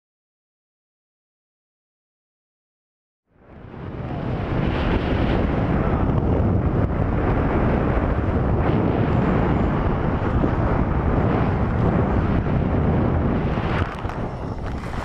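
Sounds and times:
wind buffeting microphone: 0:03.4 - 0:15.0.

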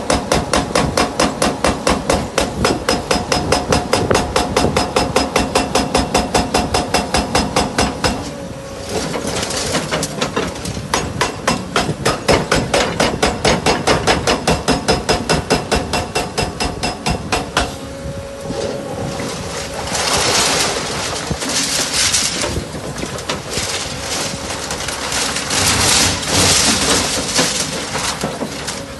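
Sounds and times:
hydraulic breaker hammering concrete: 0:00.0 - 0:08.3, 0:09.7 - 0:17.8.

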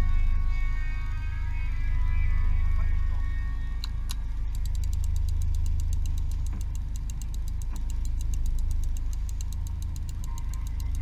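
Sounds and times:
fast even ticking: 0:03.8 - 0:11.0.

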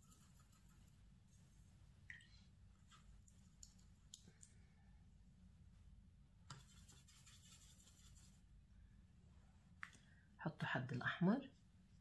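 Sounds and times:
paint brush scratching: 0:00.0 - 0:01.0, 0:06.5 - 0:08.4
low steady hum: 0:00.0 - 0:12.0.

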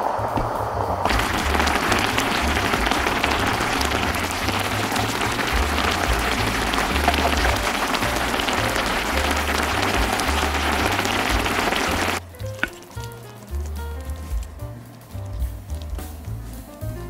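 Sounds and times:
sauce bubbling in a pot: 0:01.0 - 0:14.4.

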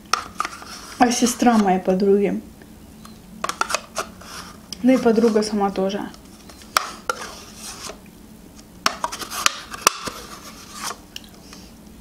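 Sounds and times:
spoon scraping plastic cup: 0:00.1 - 0:01.7, 0:03.5 - 0:05.6, 0:06.4 - 0:08.0.

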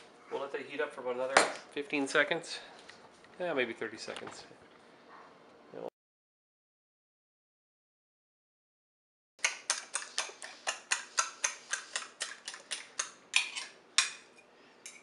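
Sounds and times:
fork beating eggs in bowl: 0:09.4 - 0:15.0.

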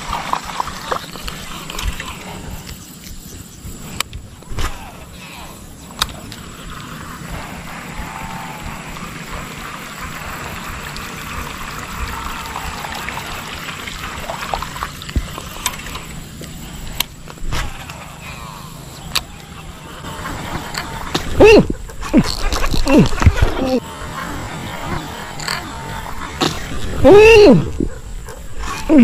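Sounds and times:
water trickling and sloshing: 0:00.0 - 0:02.8, 0:05.8 - 0:18.1.

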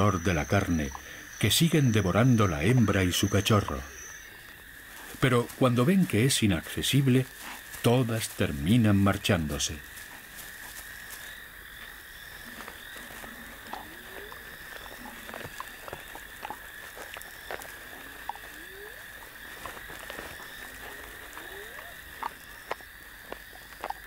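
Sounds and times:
insects chirring: 0:00.0 - 0:24.0
frog calls rising in pitch: 0:12.2 - 0:22.8.

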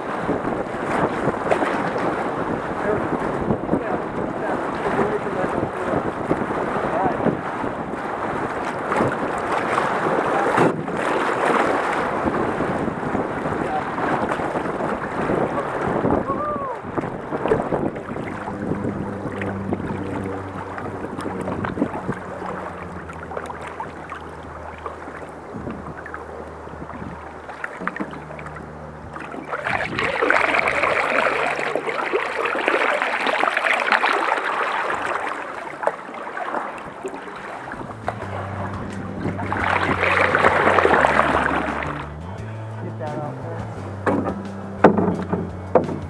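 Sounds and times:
canoe paddles splashing: 0:00.0 - 0:46.0
river water rushing: 0:00.0 - 0:46.0
low steady hum: 0:15.5 - 0:46.0.

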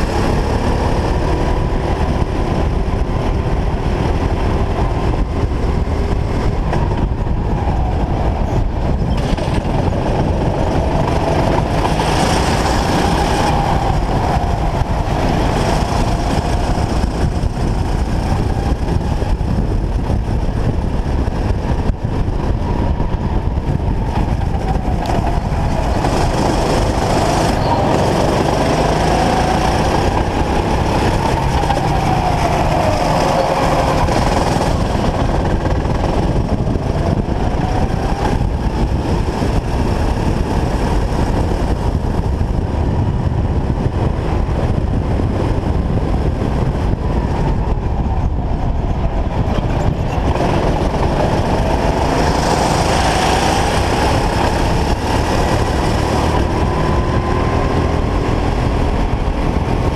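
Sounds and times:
go-kart engine revving: 0:00.0 - 0:59.9
road rumble: 0:00.0 - 0:59.9
wind rushing: 0:00.0 - 0:59.9.

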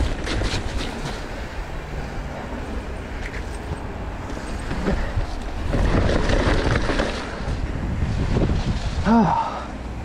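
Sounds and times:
bike rattling: 0:00.0 - 0:09.7
bike tyres skidding on dirt: 0:04.3 - 0:09.6
wind on microphone: 0:04.7 - 0:09.3.

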